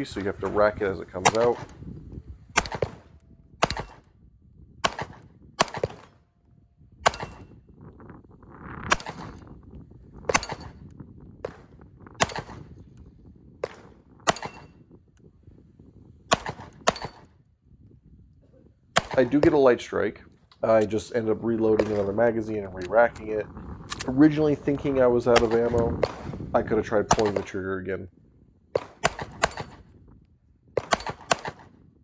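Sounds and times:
pistol shots: 1.2s - 1.8s, 2.5s - 4.1s, 4.8s - 6.2s, 7.0s - 7.6s, 8.9s - 9.5s, 10.3s - 10.8s, 11.4s - 12.7s, 13.6s - 14.8s, 16.3s - 17.3s, 19.0s - 19.7s, 21.6s - 23.0s, 24.8s - 27.6s, 28.8s - 29.9s, 30.8s - 31.8s.

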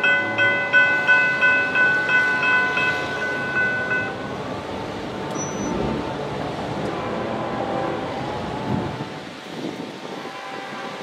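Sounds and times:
railroad crossing bell ringing: 0.0s - 5.8s.

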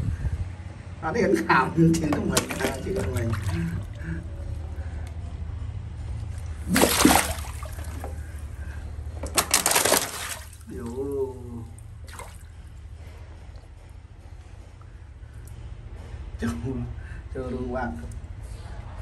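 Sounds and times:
water splashing hard: 2.4s - 3.8s, 6.7s - 8.1s, 9.4s - 10.7s.

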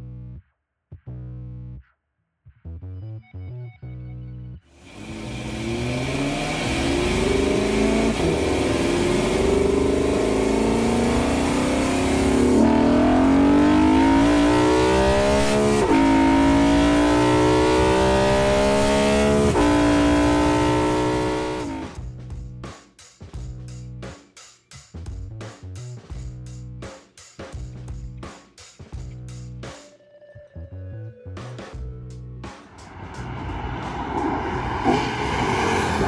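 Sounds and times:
car engine accelerating hard: 4.8s - 22.0s, 33.1s - 36.0s.

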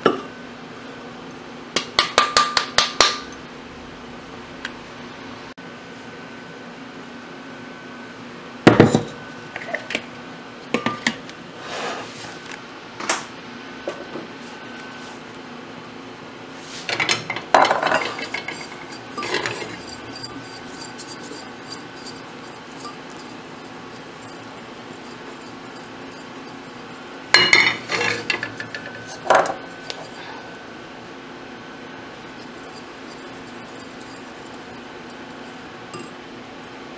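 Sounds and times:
kitchenware knocking and clinking: 16.9s - 23.3s, 27.4s - 30.2s.

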